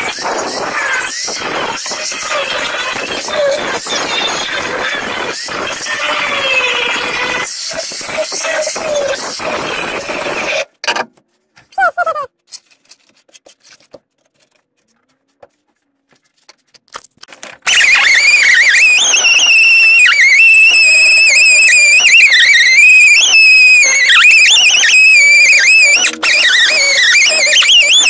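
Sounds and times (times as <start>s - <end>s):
drill with wire brush whining: 0.0s - 10.6s, 17.7s - 28.0s.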